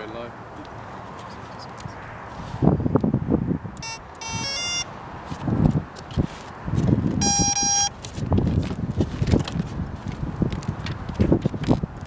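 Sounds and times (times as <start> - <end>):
wind buffeting microphone: 0.7 - 12.0
long steady beep: 3.8 - 4.9, 7.2 - 8.0
short electronic beeps: 3.8 - 4.9, 7.2 - 8.0
differently pitched tones: 3.8 - 5.0, 7.2 - 8.0.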